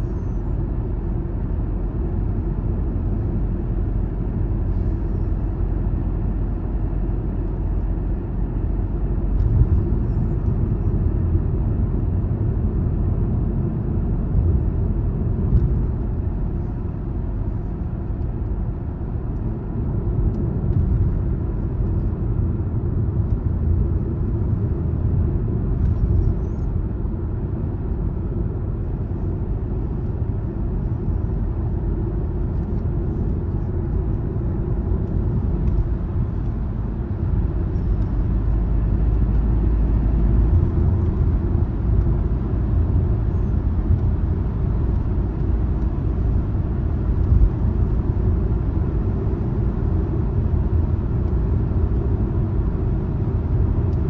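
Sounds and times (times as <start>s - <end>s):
car engine and tyre rumble: 0.0s - 54.0s.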